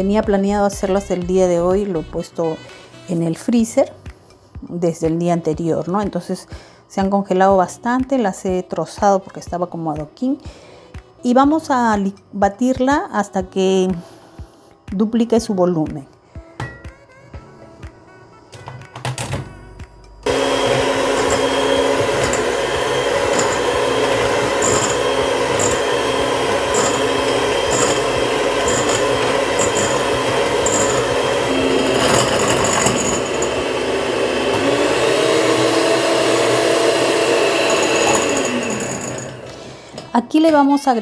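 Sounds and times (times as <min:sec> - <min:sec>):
electric hand mixer whining: 0:20.2 - 0:40.0.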